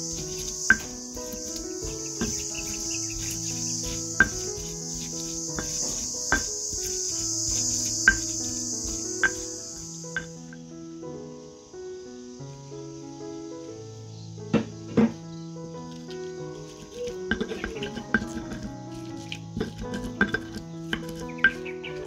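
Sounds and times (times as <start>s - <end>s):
pestle knocking in stone mortar: 0.0s - 10.3s, 16.9s - 22.0s
insects chirping: 0.0s - 22.0s
soft background music: 0.0s - 22.0s.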